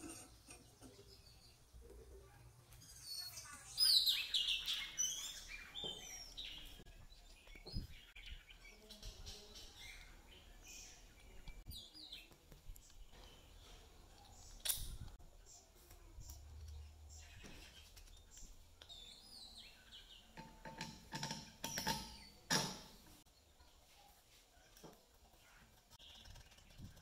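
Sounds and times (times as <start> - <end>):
small birds chirping: 0.0 - 27.0
clicks of small steel parts: 14.5 - 15.2.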